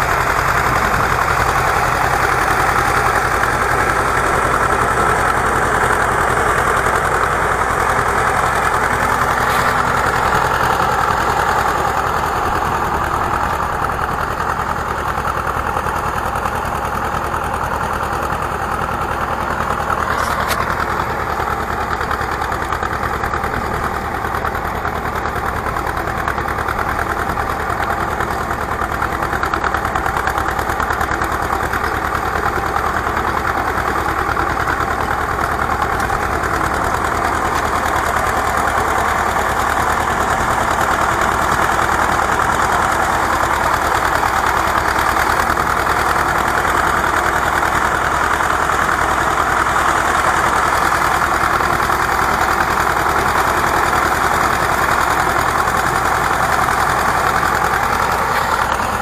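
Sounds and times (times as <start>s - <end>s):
tractor engine running under load: 0.0s - 59.0s.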